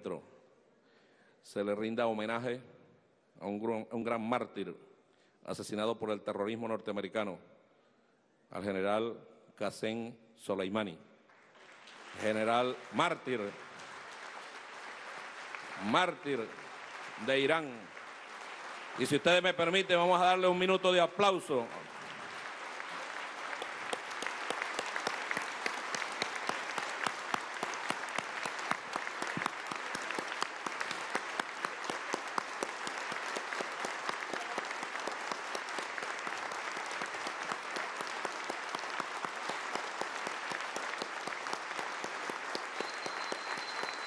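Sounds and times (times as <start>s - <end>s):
large audience applauding: 11.3s - 44.0s.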